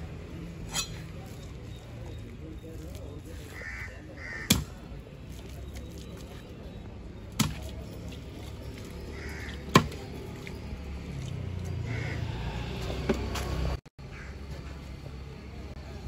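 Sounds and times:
cleaver chopping fish on wood: 4.4s - 4.8s, 7.3s - 7.8s, 9.4s - 10.1s.

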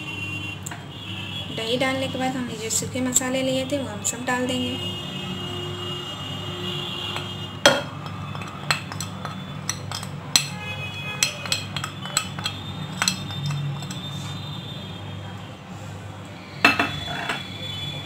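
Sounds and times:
glass bowls clinking: 7.2s - 14.2s, 16.6s - 17.6s.

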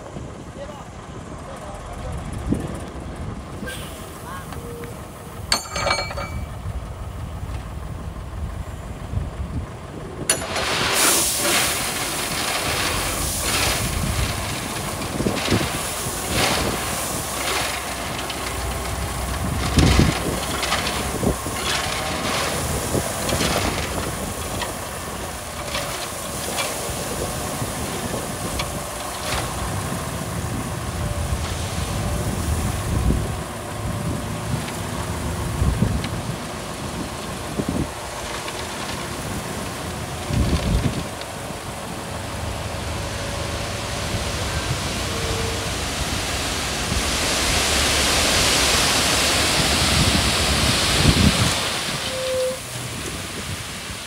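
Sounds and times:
heavy machinery diesel engines: 0.0s - 54.0s
loud rushing hiss: 10.4s - 18.0s, 42.3s - 54.0s.

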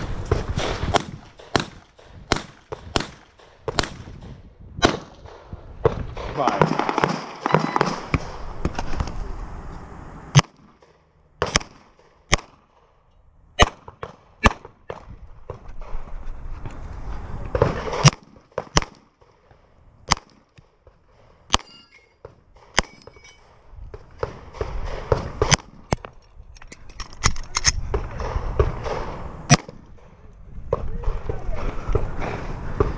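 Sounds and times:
pistol shots: 0.3s - 8.4s, 10.4s - 12.8s, 13.6s - 15.1s, 17.6s - 19.2s, 22.5s - 23.2s, 24.2s - 26.0s, 27.9s - 30.1s.

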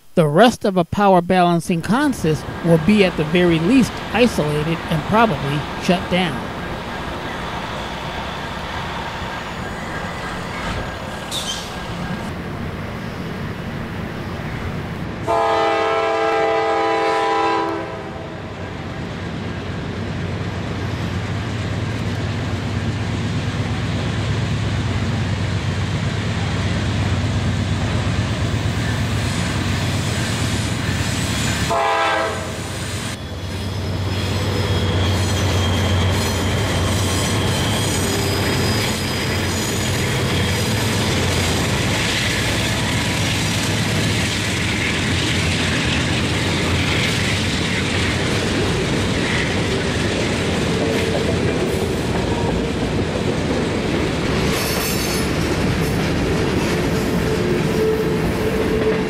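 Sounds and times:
diesel locomotive engine rumble: 1.8s - 59.0s
wheels rolling on rail: 6.4s - 15.3s, 18.6s - 59.0s
multi-tone train air horn: 15.3s - 18.4s, 31.7s - 32.8s.

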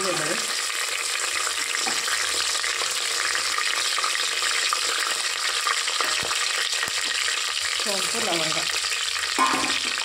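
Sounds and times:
spices sizzling in hot oil: 0.0s - 10.0s
small pops in frying oil: 1.4s - 7.5s, 8.8s - 10.0s.

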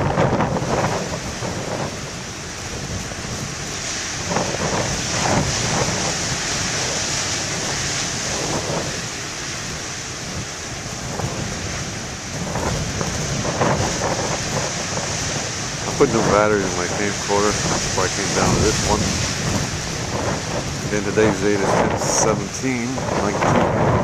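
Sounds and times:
heavy surf on rocky shore: 0.0s - 24.0s
wind buffeting microphone: 0.0s - 24.0s.

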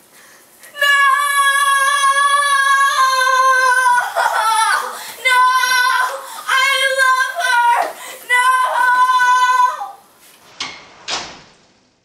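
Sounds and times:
high-pitched held cry: 0.7s - 10.0s.

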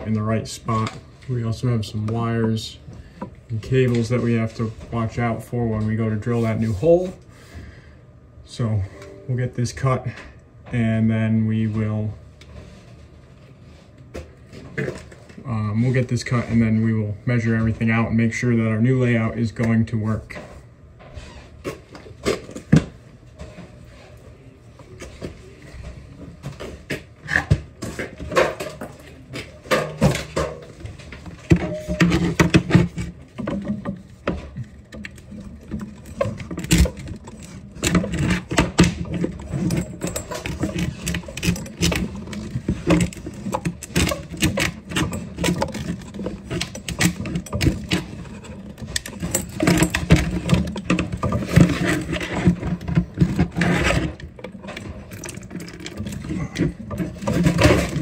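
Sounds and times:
pipe cutter scraping metal: 35.1s - 58.0s.

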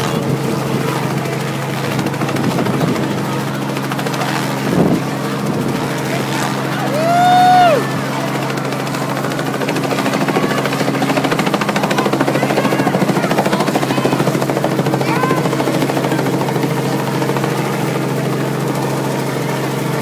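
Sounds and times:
helicopter engine drone: 0.0s - 20.0s
helicopter rotor beating: 0.0s - 20.0s.

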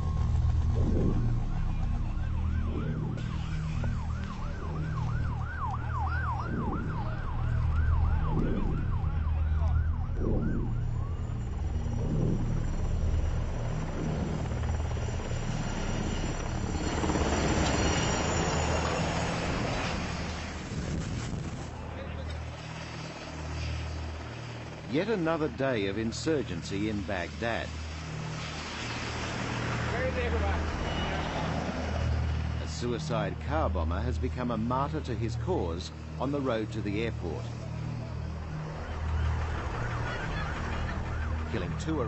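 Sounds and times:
low engine rumble: 0.0s - 16.5s
siren wailing: 0.0s - 24.8s, 37.4s - 42.0s
broad rushing noise: 0.0s - 25.7s.

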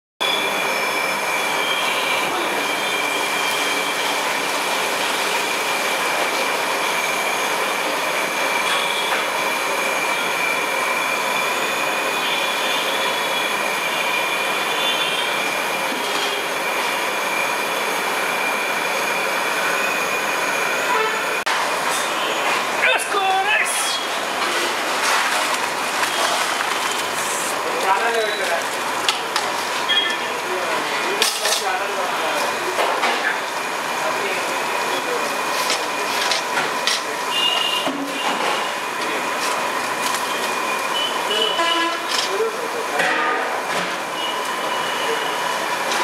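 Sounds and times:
high whistle-like tone: 0.2s - 4.2s, 29.9s - 30.4s.

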